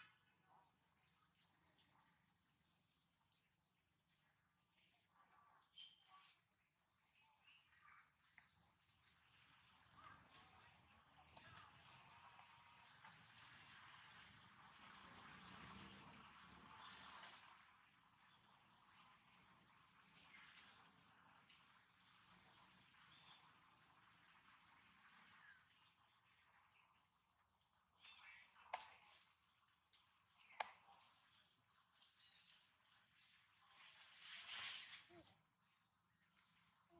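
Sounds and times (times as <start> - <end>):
faint insect chirping: 0.0 - 36.9
soft rustle: 33.1 - 35.4.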